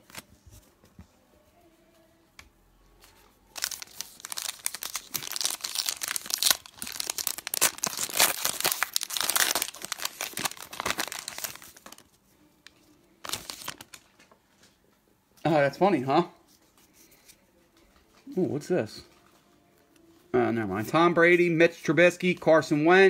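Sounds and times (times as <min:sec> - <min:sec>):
foil wrapper tearing and crinkling: 0:03.6 - 0:12.1, 0:13.2 - 0:14.1.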